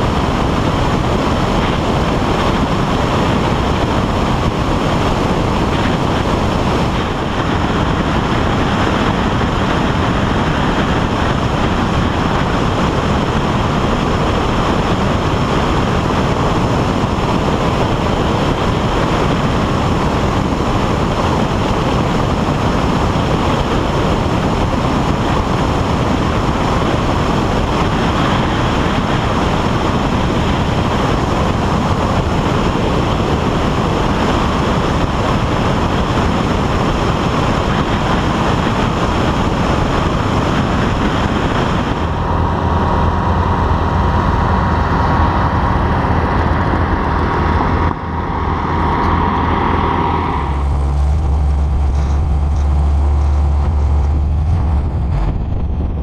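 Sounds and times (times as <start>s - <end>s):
light aircraft engine drone: 0.0s - 56.0s
radial aircraft engines droning: 0.0s - 56.0s
wind rushing over microphone: 0.0s - 56.0s.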